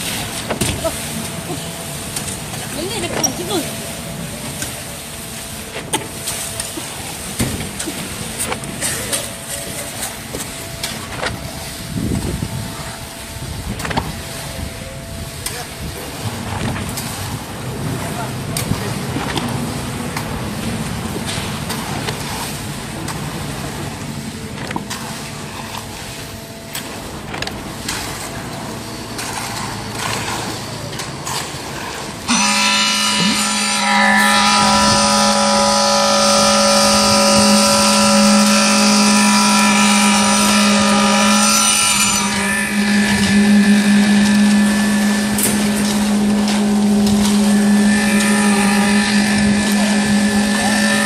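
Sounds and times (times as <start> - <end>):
concrete pump running: 0.0 - 51.0.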